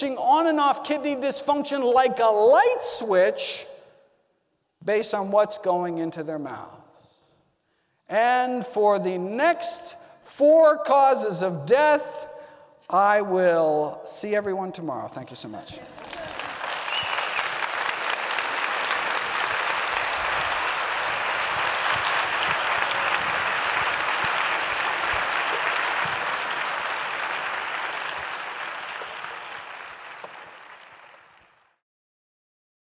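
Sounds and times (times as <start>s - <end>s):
audience applauding: 15.8s - 31.8s.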